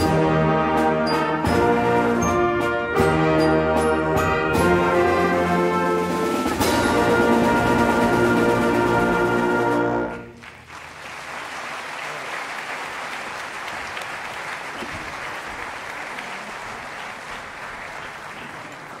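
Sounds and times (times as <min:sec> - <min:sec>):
audience applauding: 0:10.2 - 0:19.0.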